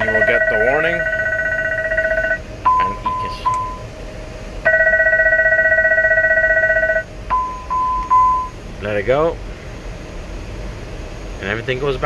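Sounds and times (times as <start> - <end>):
pulsing fire alarm: 0.0 - 3.9, 4.6 - 8.6
short beeps: 0.0 - 3.9, 4.7 - 8.6.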